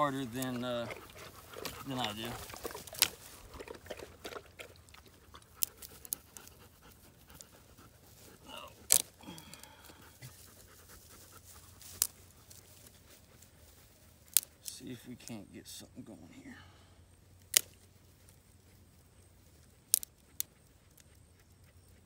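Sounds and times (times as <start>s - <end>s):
dog panting: 0.0s - 8.9s, 9.7s - 14.6s, 20.2s - 22.0s
twigs snapping: 0.2s - 4.4s, 8.8s - 9.9s, 11.8s - 12.6s, 14.2s - 14.8s, 17.4s - 18.0s, 19.6s - 20.5s.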